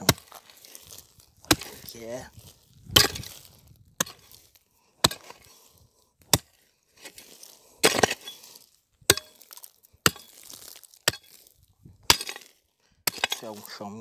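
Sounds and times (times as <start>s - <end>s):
hoe chopping stony soil: 0.0s - 14.0s.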